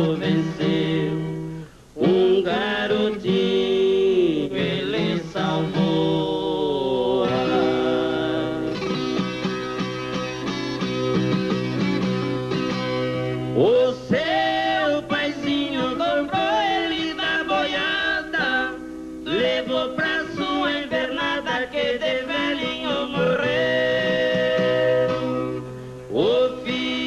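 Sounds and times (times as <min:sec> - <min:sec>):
men singing: 0:00.0 - 0:01.4, 0:02.0 - 0:08.8, 0:13.6 - 0:25.5, 0:26.1 - 0:27.0
acoustic guitar: 0:00.0 - 0:27.0.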